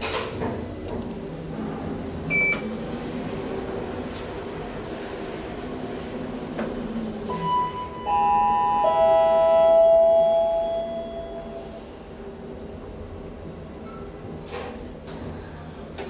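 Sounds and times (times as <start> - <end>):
descending elevator chime: 7.3 - 11.8.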